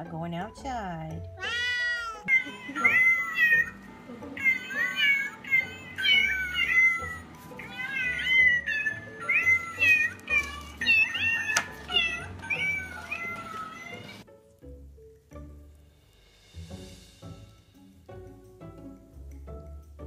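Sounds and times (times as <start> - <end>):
cat meowing: 1.4 - 3.8, 4.4 - 14.2.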